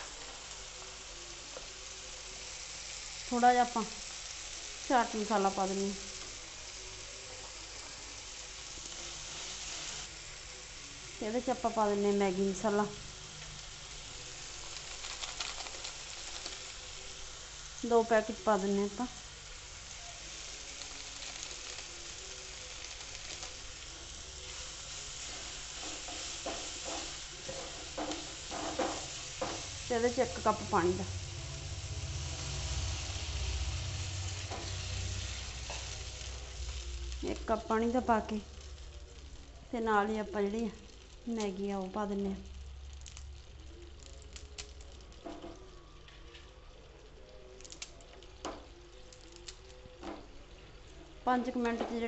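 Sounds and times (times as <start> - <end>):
vegetables sizzling in frying pan: 0.0 - 52.0
dry noodles crackling: 11.2 - 51.4
spatula scraping and knocking pan: 25.8 - 29.8.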